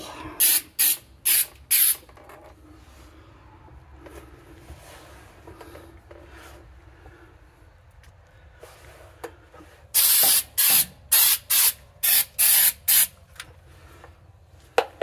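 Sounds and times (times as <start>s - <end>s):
aerosol can spraying: 0.4s - 2.0s, 10.0s - 13.1s.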